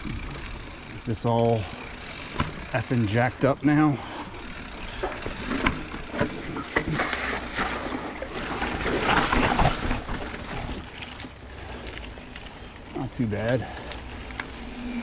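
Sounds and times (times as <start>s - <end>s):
bike clicks and knocks: 0.0s - 7.6s
bike tyres crunching on dirt: 0.0s - 15.0s.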